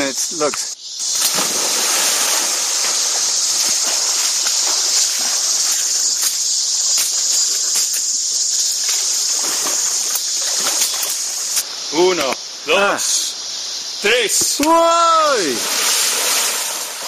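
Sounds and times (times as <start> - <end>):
water splashes: 1.0 - 6.4, 8.7 - 11.6, 14.6 - 17.0
river rushing: 1.2 - 5.8.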